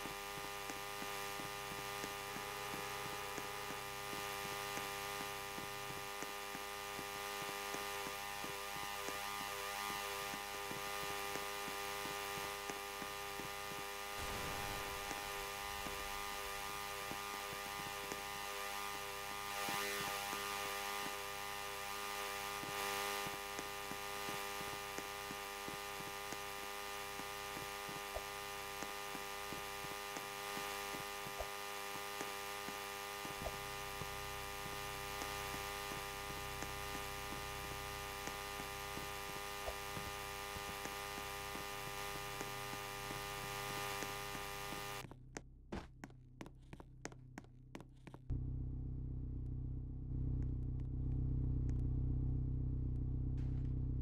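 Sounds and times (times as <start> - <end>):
electrical hum: 0.0 - 54.0
hiss: 10.2 - 18.0.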